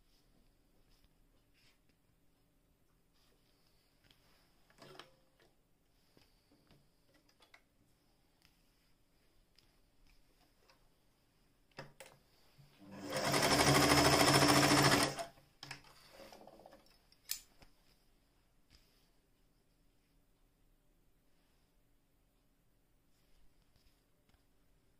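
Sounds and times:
sewing machine running: 12.9 - 15.3.

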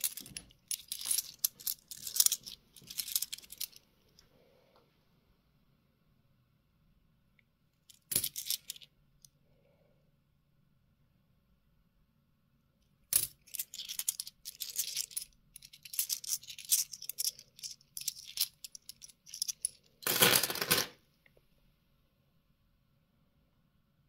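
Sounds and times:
coins clinking: 0.0 - 3.8, 8.0 - 8.8, 13.2 - 20.9.

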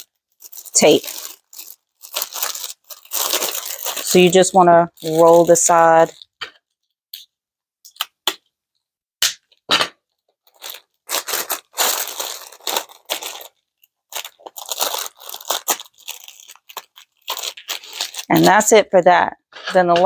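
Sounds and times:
cellophane bag crinkling: 0.0 - 6.4, 10.4 - 18.7.

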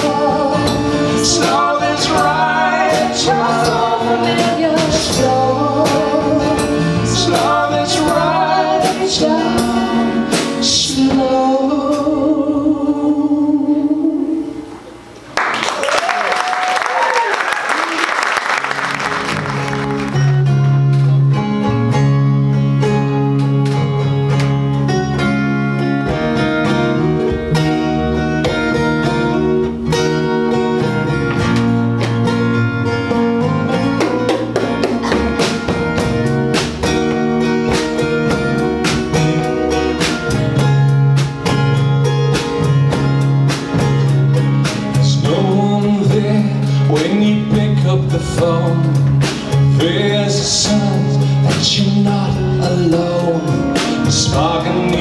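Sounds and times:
strummed acoustic guitars: 0.0 - 12.2, 18.6 - 55.0
drums: 0.0 - 13.0, 14.4 - 55.0
person singing: 0.0 - 14.7, 44.9 - 55.0
electric bass: 0.0 - 15.4, 18.7 - 55.0.

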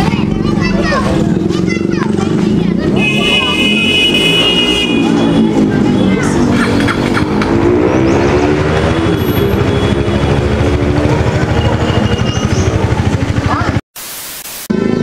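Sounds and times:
loud motorcycle engine revving: 0.0 - 13.8, 14.7 - 15.0.

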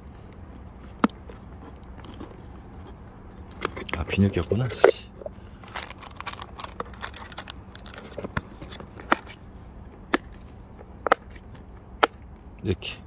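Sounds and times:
plastic bag crinkling: 5.6 - 8.3.

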